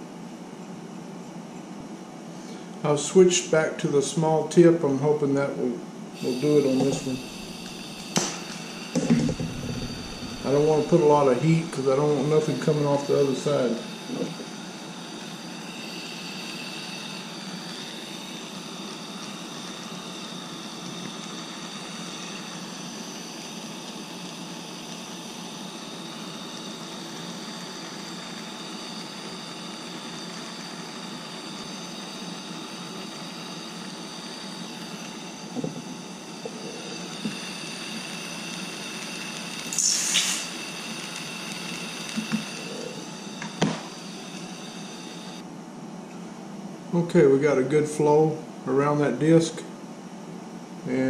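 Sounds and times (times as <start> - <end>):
gas torch hissing: 5.2 - 45.5.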